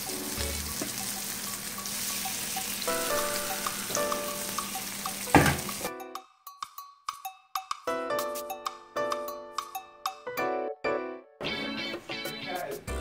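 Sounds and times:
plantain slices sizzling in pan: 0.0s - 5.9s
light background music: 0.0s - 13.0s.

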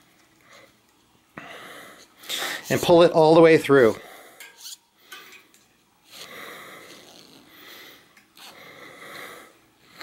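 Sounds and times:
person breathing through nose: 6.1s - 10.0s.

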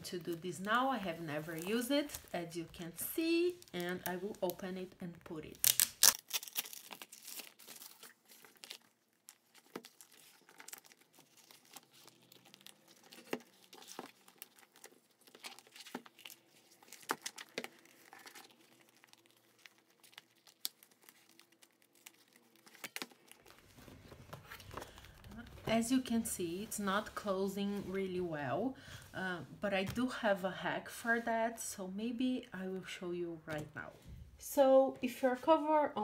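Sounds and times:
plastic cover crinkling: 0.0s - 28.0s
sharp plastic crackles: 3.4s - 25.8s.

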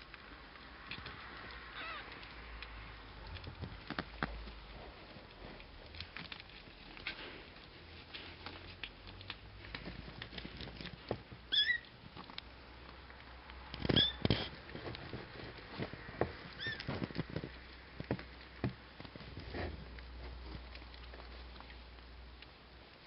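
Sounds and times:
soft clicks and rustling: 0.0s - 23.0s
kittens mewing: 1.7s - 2.3s.

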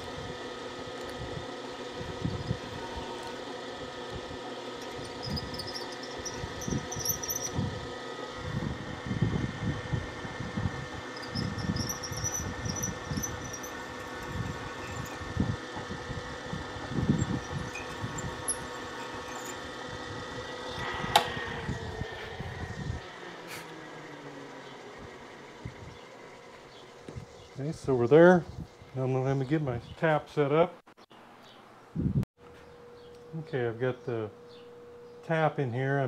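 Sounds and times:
milling machine hum: 0.0s - 29.4s
drill bit rumbling: 0.0s - 29.5s
drill bit squealing: 1.8s - 8.0s, 10.1s - 29.1s.

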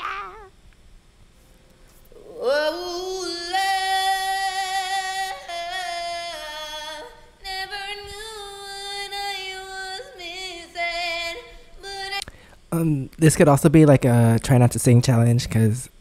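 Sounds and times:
person singing unaccompanied: 2.1s - 12.9s.

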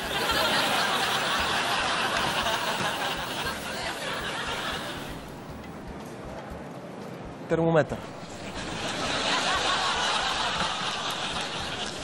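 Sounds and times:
canned audience laughter: 0.0s - 5.3s, 8.4s - 12.0s.

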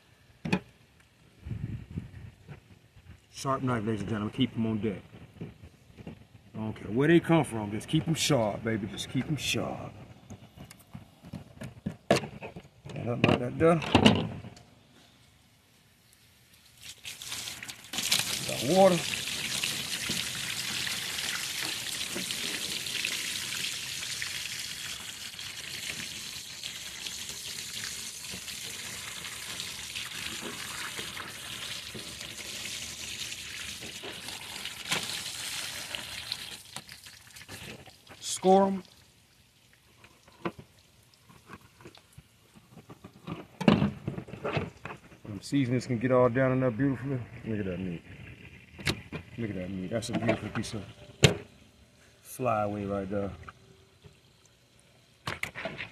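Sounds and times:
hose water splashing: 15.8s - 43.6s.

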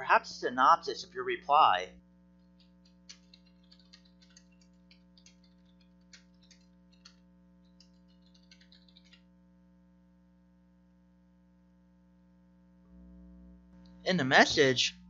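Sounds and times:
low electrical hum: 0.0s - 15.0s
keyboard keystrokes: 2.6s - 9.2s.

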